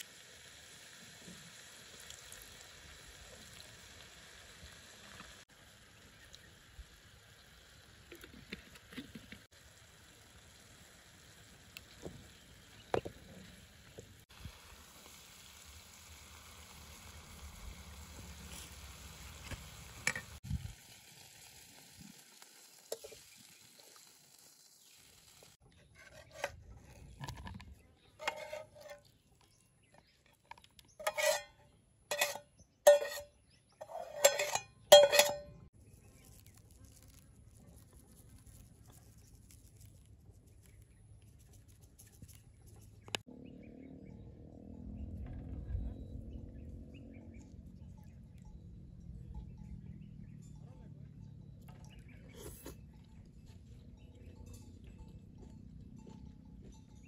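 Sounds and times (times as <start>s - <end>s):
stir-fry sizzling in a pan: 13.6s - 25.6s
spatula scraping a pan: 25.8s - 29.3s, 30.9s - 35.6s.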